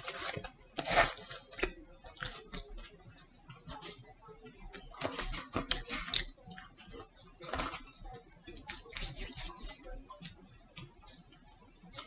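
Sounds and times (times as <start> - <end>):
paper packaging crackling and rustling: 0.0 - 3.0
eating sounds: 0.0 - 12.0.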